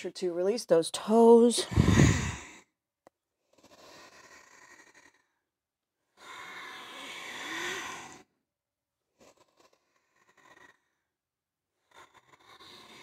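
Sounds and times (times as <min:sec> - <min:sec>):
woman breathing: 0:01.6 - 0:02.7, 0:06.2 - 0:08.3.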